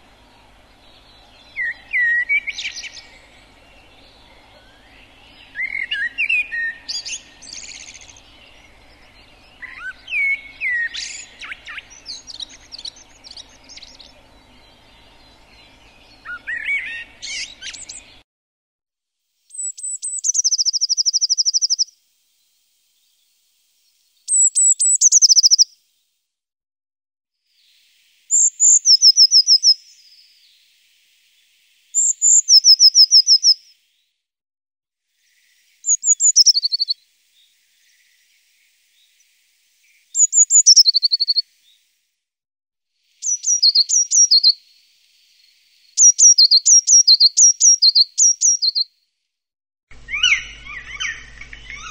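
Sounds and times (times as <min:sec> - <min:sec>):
bird chirps: 0:00.0 - 0:18.2, 0:19.5 - 0:21.9, 0:24.2 - 0:25.8, 0:27.6 - 0:30.7, 0:31.9 - 0:33.8, 0:35.2 - 0:41.8, 0:43.2 - 0:48.9, 0:49.9 - 0:51.9
low steady hum: 0:00.0 - 0:18.2
bird call with buzzy trill: 0:50.0 - 0:51.9.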